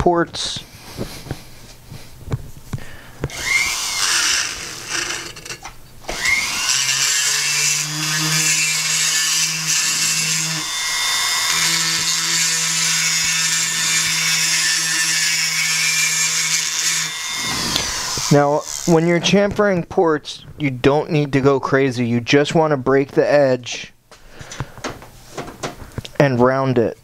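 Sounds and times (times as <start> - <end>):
die grinder whining: 3.3 - 19.2.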